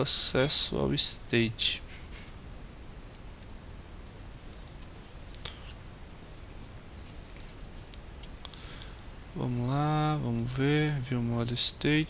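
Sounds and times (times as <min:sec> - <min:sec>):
keyboard and mouse clicks: 0:03.1 - 0:05.8, 0:06.6 - 0:09.0.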